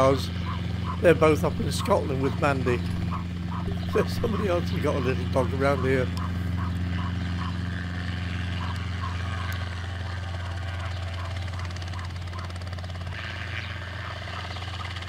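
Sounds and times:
helicopter hovering drone: 0.0s - 15.0s
small dog yapping: 3.1s - 3.7s, 6.2s - 7.6s, 8.6s - 9.6s, 10.4s - 12.6s.

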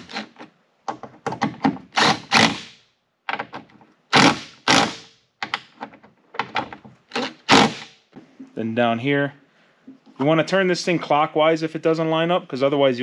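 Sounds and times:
impact driver hammering rattle: 1.4s - 2.8s, 4.2s - 5.1s, 6.6s - 7.9s.

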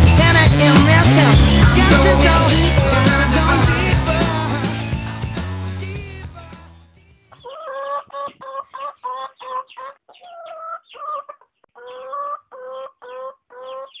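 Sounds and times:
chicken clucking: 7.3s - 14.0s.

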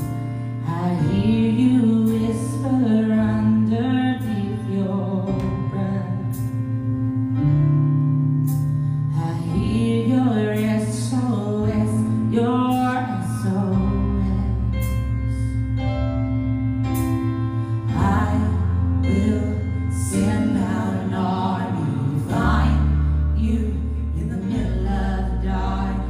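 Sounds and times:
instrumental accompaniment: 0.0s - 25.9s
woman singing worship song: 0.3s - 6.5s, 9.1s - 15.5s, 17.9s - 26.0s.

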